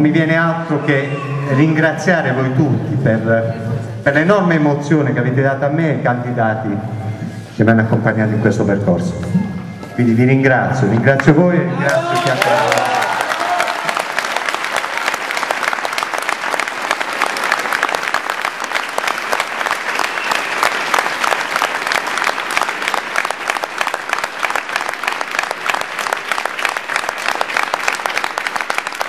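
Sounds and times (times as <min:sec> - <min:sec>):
crowd applauding: 0:10.9 - 0:29.0.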